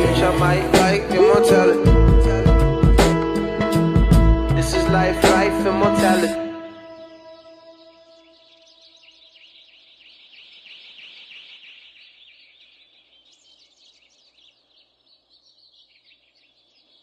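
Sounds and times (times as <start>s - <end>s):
small birds chirping chorus: 4.6s - 17.0s.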